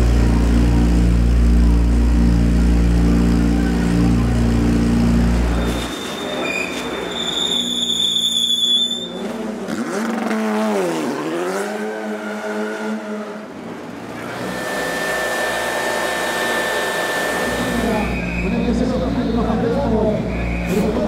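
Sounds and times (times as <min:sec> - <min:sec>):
race car engine running: 0:00.0 - 0:06.0, 0:13.4 - 0:21.0
handheld blower whine: 0:14.2 - 0:18.2.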